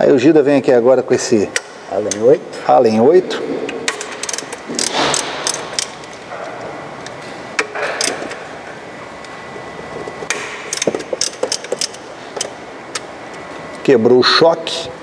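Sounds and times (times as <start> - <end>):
allen key clicking on bolts: 3.9 - 6.2, 10.3 - 13.1.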